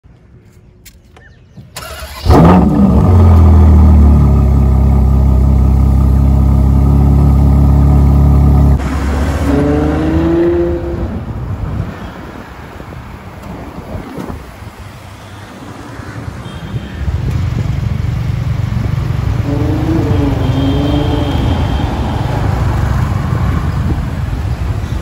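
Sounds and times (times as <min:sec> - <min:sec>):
car accelerating: 0:01.8 - 0:11.4, 0:18.6 - 0:24.5
car engine revving and idling: 0:02.1 - 0:11.4, 0:17.6 - 0:24.5
wind noise: 0:08.8 - 0:14.9, 0:16.5 - 0:25.0.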